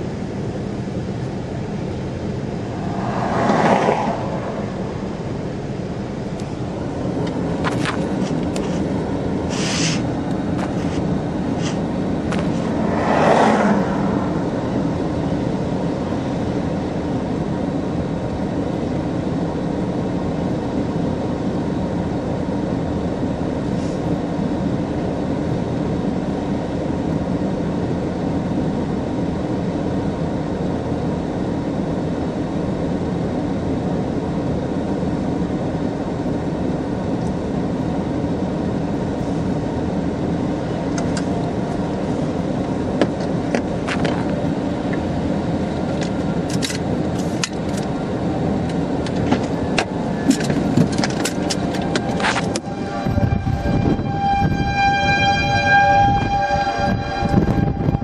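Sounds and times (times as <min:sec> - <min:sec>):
vehicle cabin rumble: 0:00.0 - 0:58.0.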